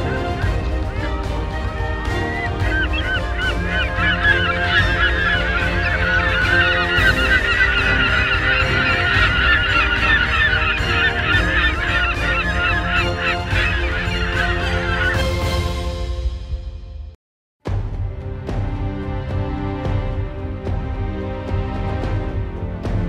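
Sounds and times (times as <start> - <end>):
seabirds calling: 0.0 - 15.7.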